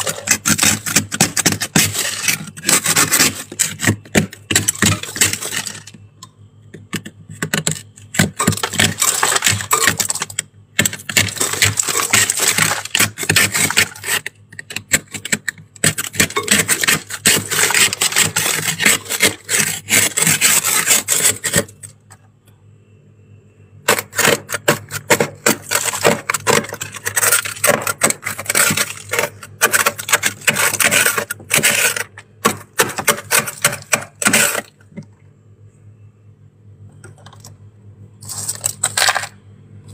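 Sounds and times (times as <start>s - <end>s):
plastic scraper scraping frost: 0.0s - 6.0s, 7.3s - 21.9s, 23.9s - 34.8s
low steady hum: 0.0s - 39.9s.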